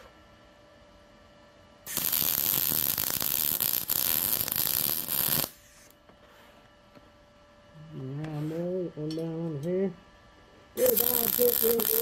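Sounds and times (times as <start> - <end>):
welder arc crackling: 1.9 - 6.0, 10.8 - 12.0.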